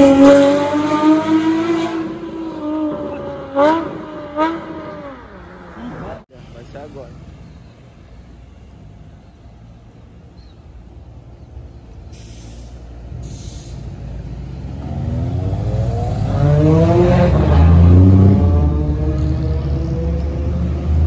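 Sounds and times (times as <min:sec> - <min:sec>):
car engine accelerating: 0:14.4 - 0:21.0.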